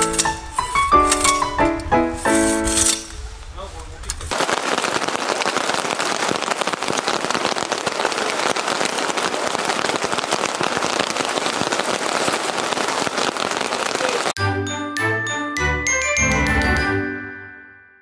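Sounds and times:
rain pattering on a tent: 3.4 - 14.4.

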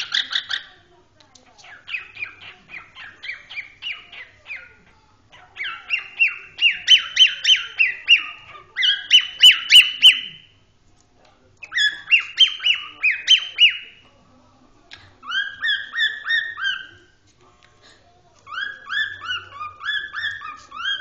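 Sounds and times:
cockatiel chirping: 0.0 - 0.8, 1.6 - 10.5, 11.6 - 14.0, 15.2 - 17.2, 18.5 - 21.0.

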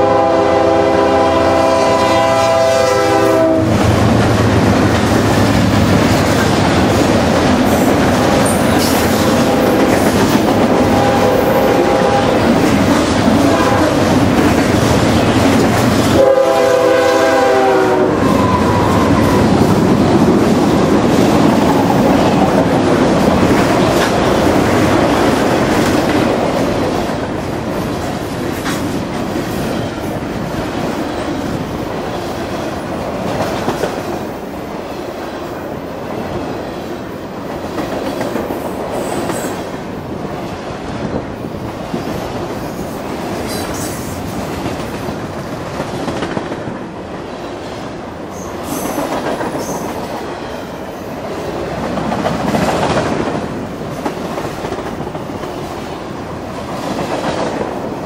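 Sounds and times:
train wheels clacking: 3.6 - 16.2, 48.4 - 50.7.

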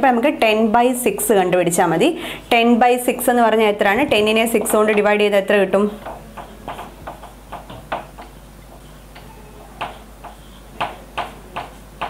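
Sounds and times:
marker tapping on whiteboard: 4.4 - 5.2, 6.0 - 12.0.

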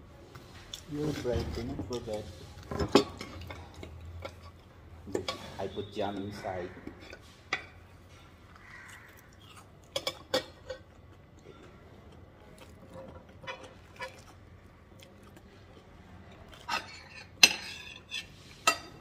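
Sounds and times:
cutlery and crockery clinking: 1.0 - 8.4, 9.8 - 14.4, 16.5 - 19.0.

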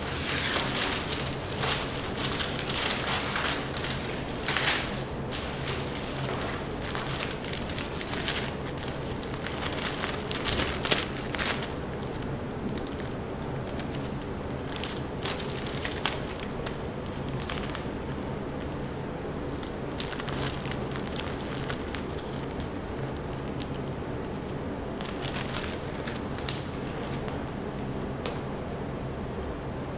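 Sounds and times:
foil balloon crinkling: 0.0 - 18.9, 19.5 - 27.3.

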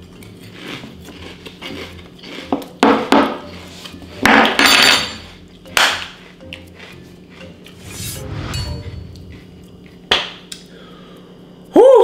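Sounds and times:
chewing crunchy cereal: 0.0 - 2.8.

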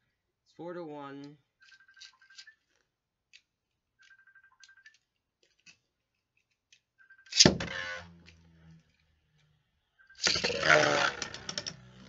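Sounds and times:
spinning tops whirring: 10.2 - 12.0.

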